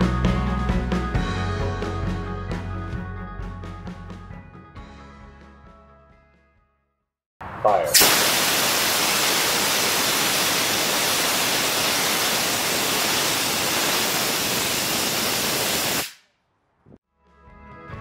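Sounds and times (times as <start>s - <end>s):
music: 0.0s - 7.2s, 17.0s - 18.0s
gas thruster rushing: 7.6s - 16.2s.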